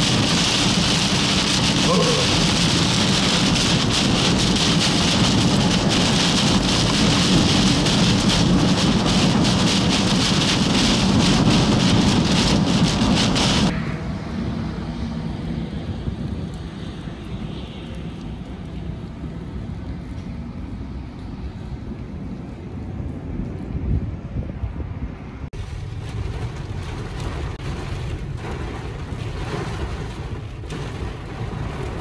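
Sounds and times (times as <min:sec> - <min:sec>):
heavy rain on vehicle: 0:00.0 - 0:13.7, 0:25.6 - 0:32.0
road rumble: 0:00.0 - 0:32.0
wind: 0:00.0 - 0:32.0.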